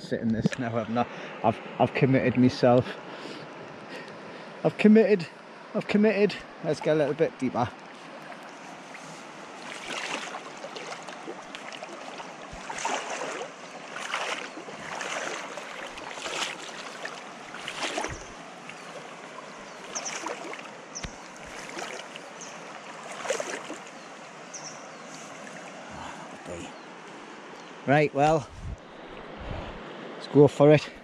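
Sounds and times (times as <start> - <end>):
river water rushing: 2.6 - 30.3
legs wading and splashing: 6.6 - 27.5.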